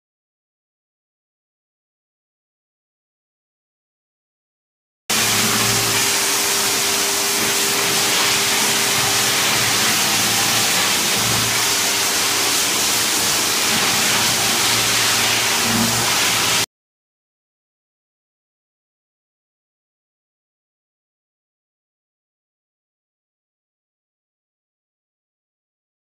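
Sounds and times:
faint motor hum: 0:05.1 - 0:16.6
floor machine brush scrubbing tiles: 0:05.1 - 0:16.7.

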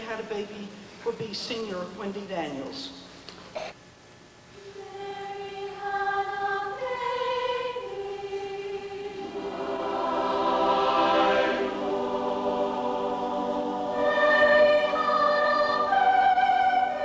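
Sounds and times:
choir singing held notes: 0:04.6 - 0:17.0.

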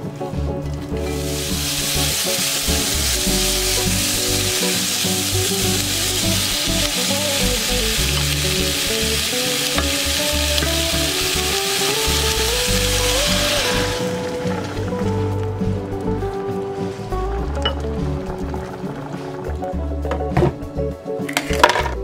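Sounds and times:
vegetables sizzling in a pot: 0:01.0 - 0:15.4.

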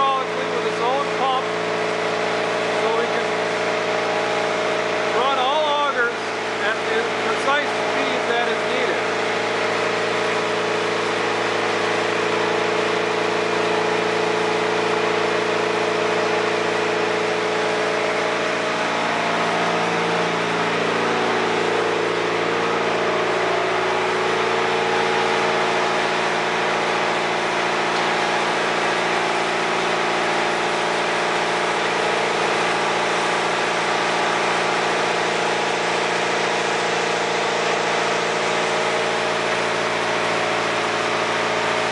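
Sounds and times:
loud machine hum: 0:00.0 - 0:41.9.

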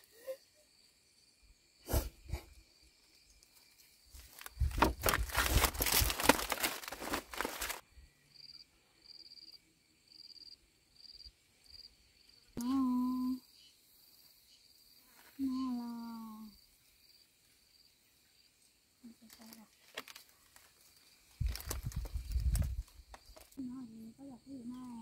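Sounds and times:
high insect chirp: 0:00.0 - 0:25.0
dry palm fronds rustling: 0:04.1 - 0:07.8, 0:19.4 - 0:23.6
person humming: 0:12.6 - 0:13.4.

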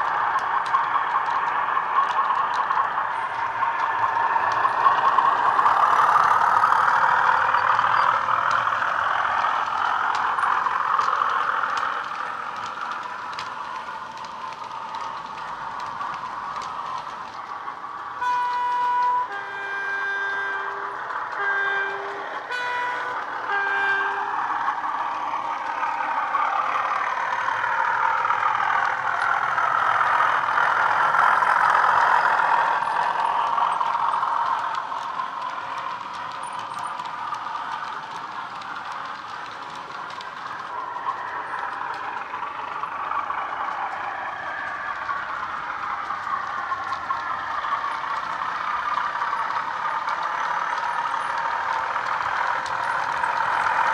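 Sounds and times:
diesel engine sound: 0:00.0 - 0:53.9
two-tone train horn: 0:18.2 - 0:24.5.

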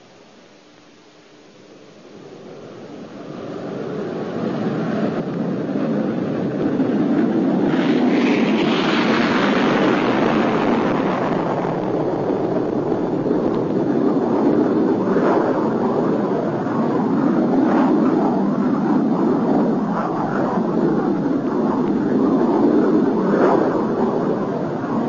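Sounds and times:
jet fighter roaring on takeoff: 0:02.2 - 0:25.0.

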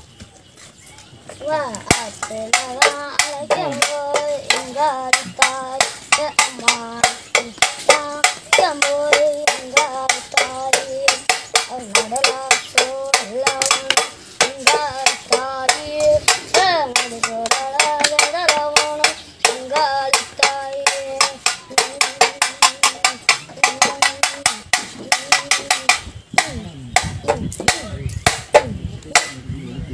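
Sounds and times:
child singing: 0:01.3 - 0:28.0
drum beaten with stick: 0:01.4 - 0:29.5.

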